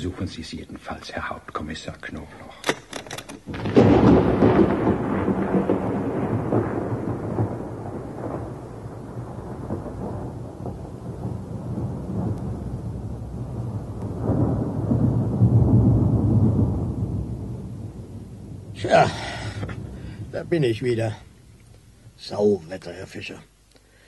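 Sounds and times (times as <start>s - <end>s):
rain: 0.0s - 24.0s
thunder rumbling: 3.4s - 23.0s.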